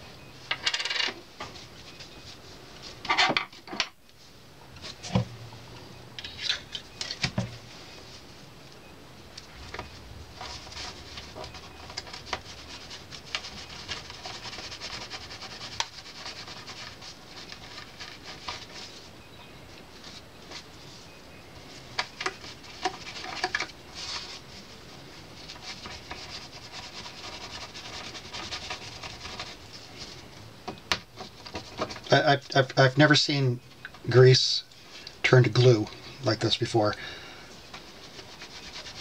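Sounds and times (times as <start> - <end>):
cotton swab scratchy rubbing: 10.4 - 19.0, 25.4 - 30.0, 37.8 - 39.0.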